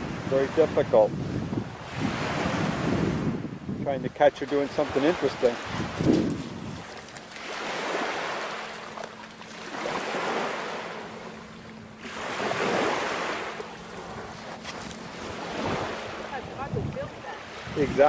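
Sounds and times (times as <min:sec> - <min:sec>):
small waves washing on sand: 0:04.2 - 0:18.0.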